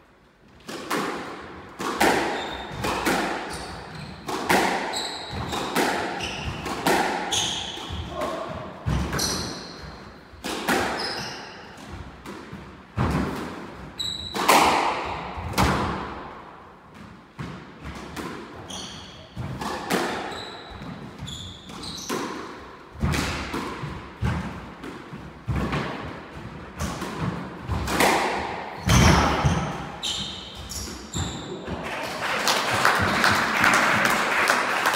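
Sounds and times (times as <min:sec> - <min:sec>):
squash ball hitting rackets and walls: 0:00.5 - 0:31.8
shoes squeaking on wooden floor: 0:04.9 - 0:06.7, 0:08.9 - 0:10.1, 0:11.0 - 0:11.8, 0:14.0 - 0:14.4, 0:20.3 - 0:22.2, 0:28.8 - 0:31.7.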